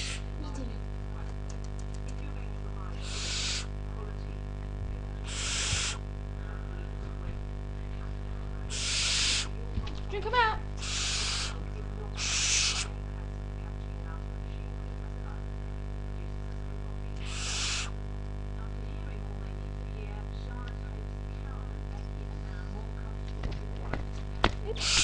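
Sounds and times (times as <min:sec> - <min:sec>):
owl chick screeching: 0:00.0 - 0:00.3, 0:03.0 - 0:03.7, 0:05.2 - 0:06.0, 0:08.7 - 0:09.6, 0:10.8 - 0:11.6, 0:12.2 - 0:13.0, 0:17.2 - 0:18.0, 0:24.7 - 0:25.0.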